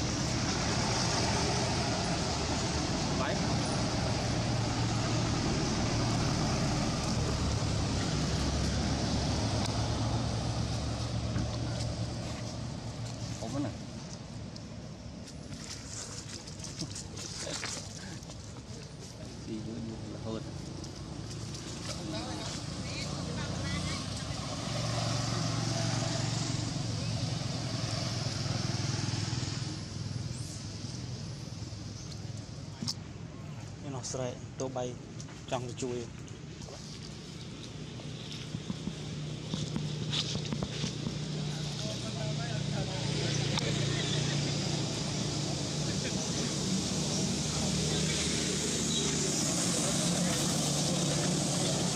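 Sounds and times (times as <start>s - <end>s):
low engine drone: 0.0s - 15.0s, 36.6s - 51.9s.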